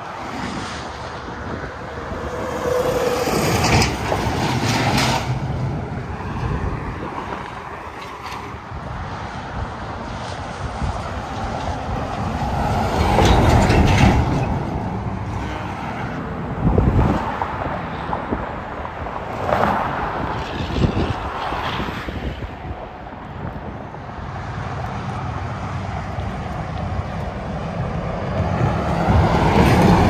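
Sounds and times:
highway traffic passing at speed: 0.0 - 30.0.

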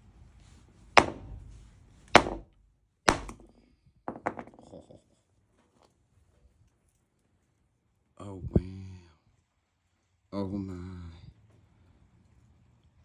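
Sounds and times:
sledgehammer cracking rock: 2.1 - 2.5, 3.1 - 3.6
rock pieces knocking on concrete: 3.1 - 4.8.

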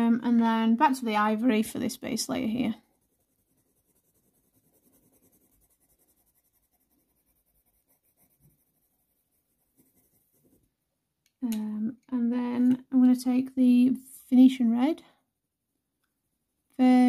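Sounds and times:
pencil scratching on paper: 1.8 - 10.8.

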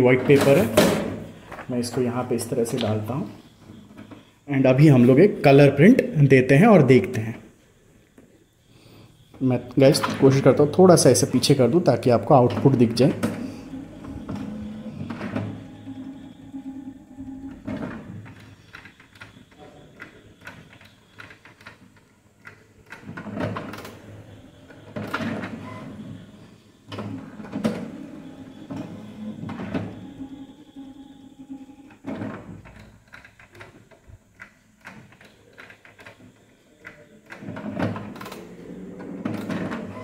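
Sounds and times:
printer knocks and clunks: 0.2 - 1.4, 12.4 - 21.7
inkjet printer mechanism running: 9.6 - 33.7, 35.0 - 40.0.

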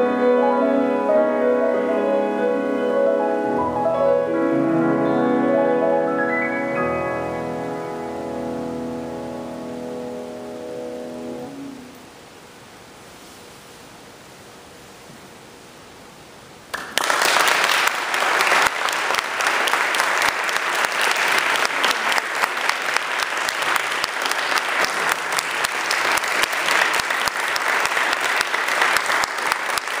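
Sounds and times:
room hiss: 0.0 - 30.0
audience applause: 16.7 - 30.0.

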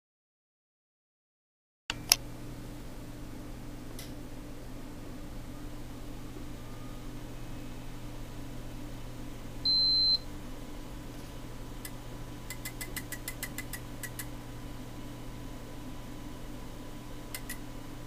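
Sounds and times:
steady low hum: 1.9 - 18.0
relays clicking: 17.3 - 17.6.

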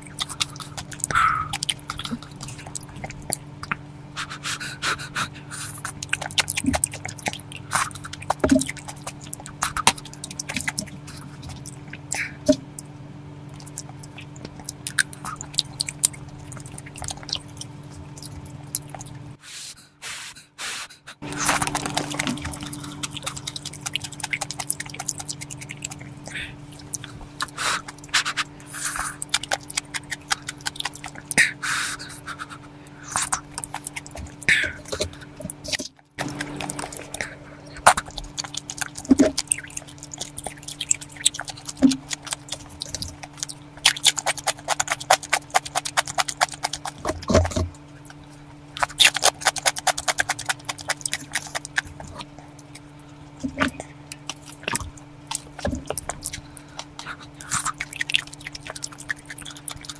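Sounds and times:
close eating sounds: 0.0 - 59.9.

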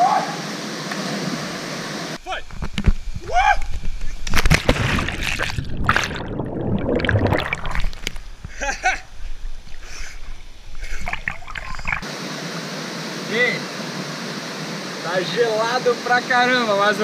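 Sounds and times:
muffled underwater turbulence: 4.3 - 12.1
splashing swim strokes: 4.5 - 8.4, 9.6 - 12.1.

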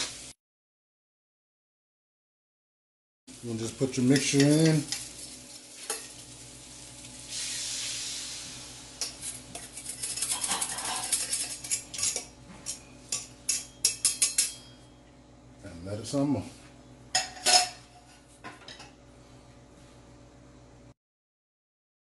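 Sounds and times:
sauce sizzling in a hot wok: 0.0 - 0.4, 3.3 - 9.8
metal bowl clinking against wok: 9.0 - 14.8.

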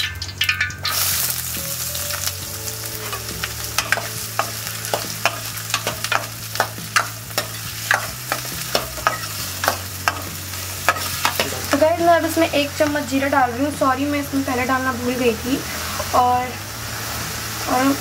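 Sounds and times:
onions sizzling in hot oil: 0.0 - 18.0
metal spoon scraping a pan: 2.1 - 11.8.

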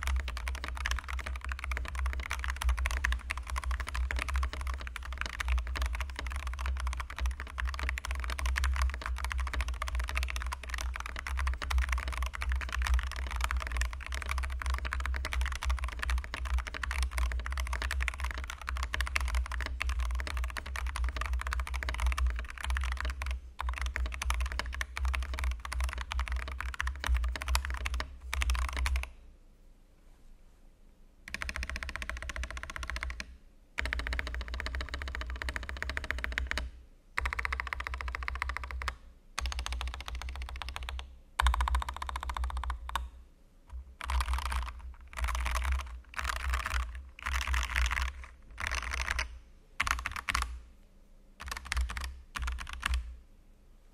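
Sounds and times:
fast mechanical keyboard typing: 0.0 - 29.1, 31.3 - 43.1, 44.0 - 50.6, 51.4 - 53.1.

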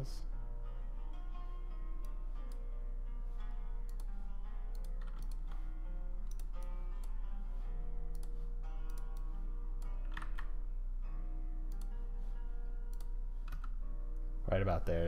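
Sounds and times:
soft sustained background music: 0.0 - 15.0
steady low hum: 0.0 - 15.0
computer keyboard clicks: 4.7 - 5.5, 6.3 - 7.2, 10.1 - 10.5, 12.9 - 13.7.

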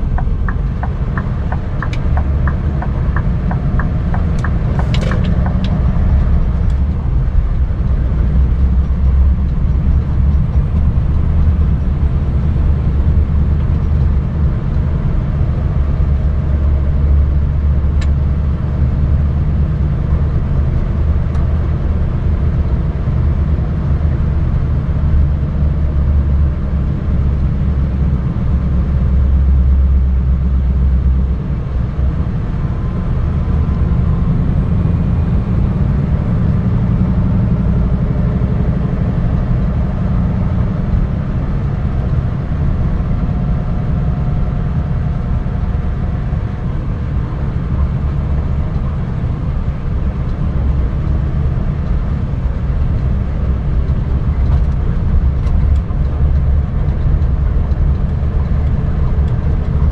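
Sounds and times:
diesel truck engine running: 0.0 - 59.9.

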